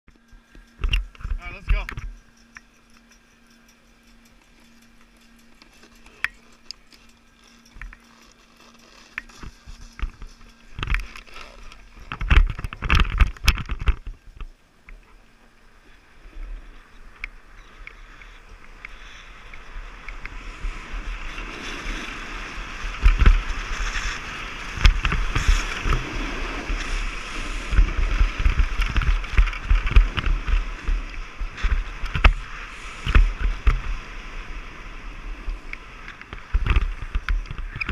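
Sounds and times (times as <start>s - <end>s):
snowboard scraping over snow: 18.5s - 37.9s.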